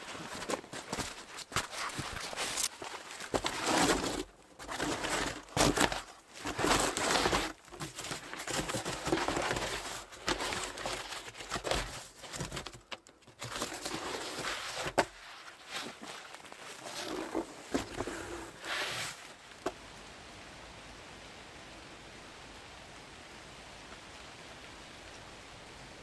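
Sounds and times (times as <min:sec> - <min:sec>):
foam mat scraping on wood: 0:00.0 - 0:12.8, 0:13.4 - 0:19.4.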